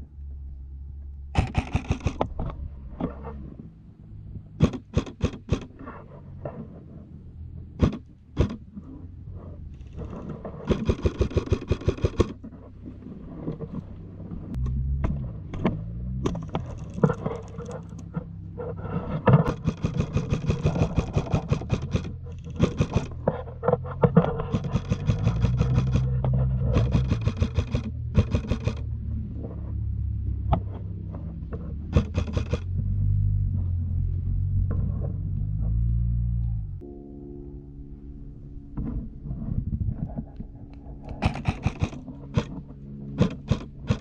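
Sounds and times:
steady low rumble: 0.0 - 44.0
airsoft rifle rapid shots: 1.4 - 2.3, 4.6 - 5.7, 10.7 - 12.4, 19.5 - 23.1, 24.5 - 26.2, 26.8 - 28.8, 31.9 - 32.6, 41.2 - 42.5, 43.2 - 44.0.

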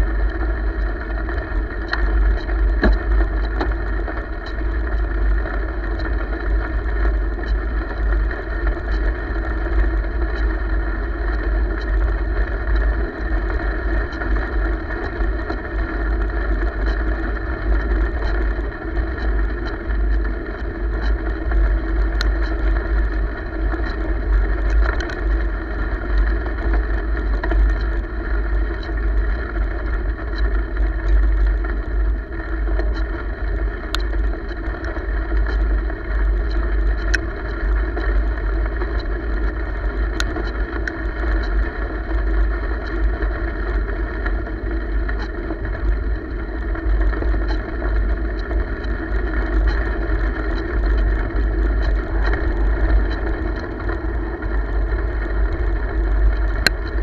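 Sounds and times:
wind buffeting microphone: 41.8 - 57.0.

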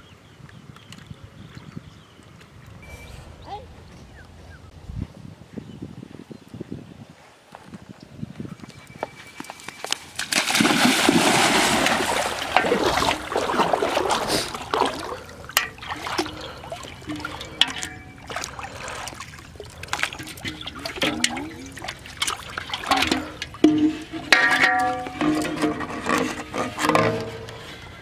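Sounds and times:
water splashing from wading: 10.2 - 25.4
water trickling and dripping: 11.3 - 25.9.

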